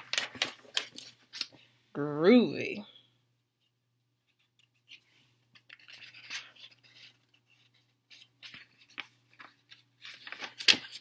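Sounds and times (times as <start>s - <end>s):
paper pages rustling: 0.0s - 1.6s, 4.3s - 11.0s
steady low hum: 0.0s - 10.4s.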